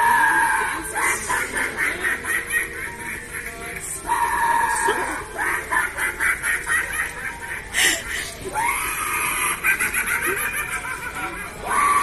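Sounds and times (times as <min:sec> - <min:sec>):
animatronic clown cackling: 0:00.0 - 0:12.0.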